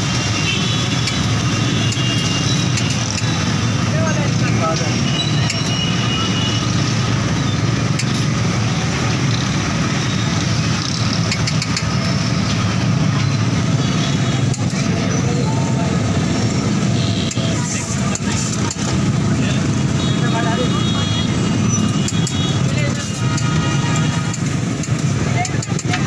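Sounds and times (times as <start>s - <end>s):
passing traffic: 0.0s - 26.0s
utensils clicking on steel griddle: 0.9s - 3.4s, 11.2s - 12.0s, 14.4s - 14.9s, 17.3s - 19.0s, 22.0s - 26.0s.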